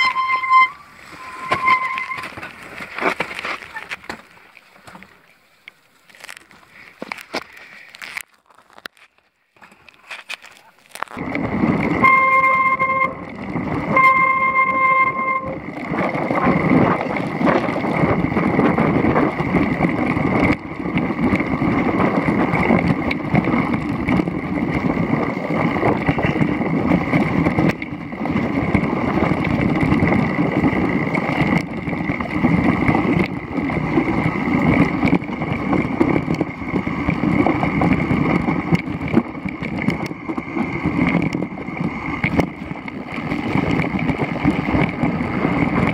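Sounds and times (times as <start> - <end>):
high squeals: 0.0 - 2.4, 12.0 - 13.3, 13.9 - 15.7
tyre rumble: 0.0 - 5.2, 9.6 - 45.9
mountain bike rattling: 0.0 - 45.9
wind noise: 9.7 - 45.9.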